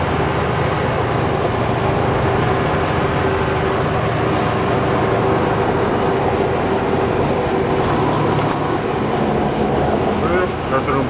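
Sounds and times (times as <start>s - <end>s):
road noise: 0.0s - 11.0s
truck engine drone: 0.0s - 11.0s.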